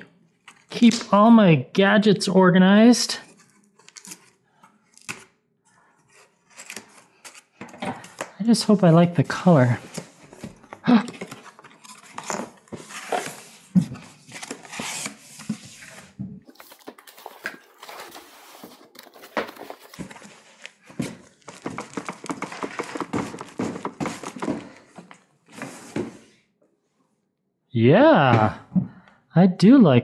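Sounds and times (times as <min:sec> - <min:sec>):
cardboard box being unpacked: 0:03.3 - 0:04.4, 0:06.0 - 0:08.2, 0:09.8 - 0:24.9
cardboard crackling: 0:06.1 - 0:25.0.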